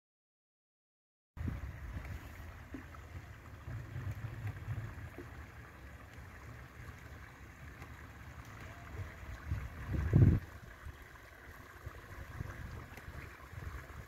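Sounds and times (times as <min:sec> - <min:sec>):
wind buffeting microphone: 0:01.4 - 0:02.3, 0:08.9 - 0:14.0.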